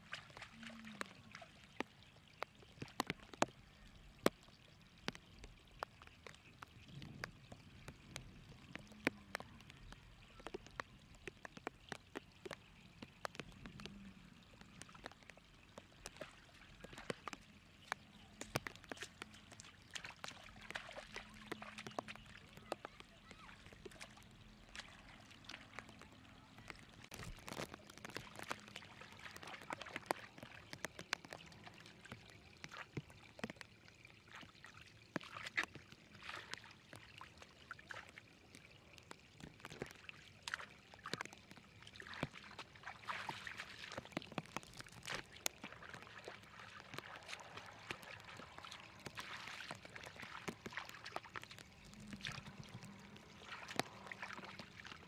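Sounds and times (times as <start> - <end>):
trickling water current: 0.0 - 55.0
hands splashing in water: 14.7 - 32.1, 39.7 - 55.0.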